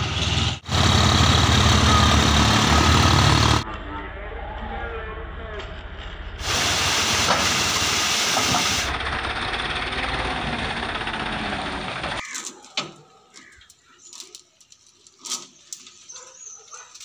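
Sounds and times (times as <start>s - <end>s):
tractor engine running: 0.0s - 3.6s, 6.4s - 12.2s
sand pouring with hissing rush: 6.4s - 8.9s.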